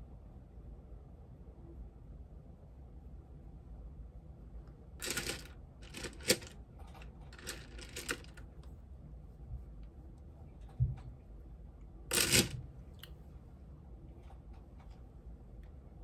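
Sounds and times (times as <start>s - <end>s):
makeup products clicking and rattling: 5.0s - 8.4s.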